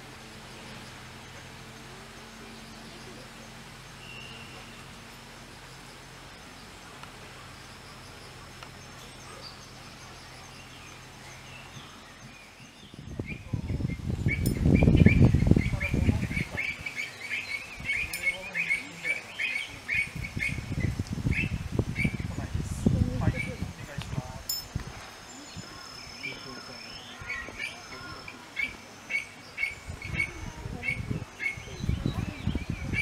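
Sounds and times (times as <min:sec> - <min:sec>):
faint steady hum: 0:00.0 - 0:33.0
bird chirping rapidly: 0:07.5 - 0:22.5.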